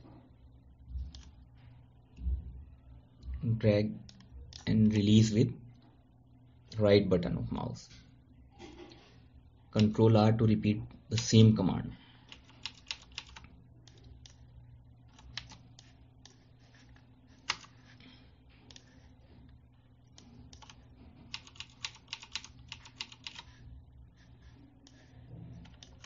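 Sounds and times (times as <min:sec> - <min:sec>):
faint steady hum: 0:00.0 - 0:26.0
computer keyboard tapping: 0:12.3 - 0:14.0, 0:20.6 - 0:23.5.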